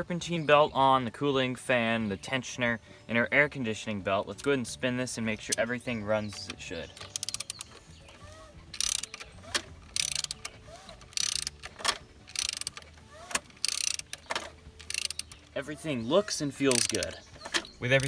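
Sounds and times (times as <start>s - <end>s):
socket ratchet clicking: 6.3s - 15.6s, 16.6s - 18.0s.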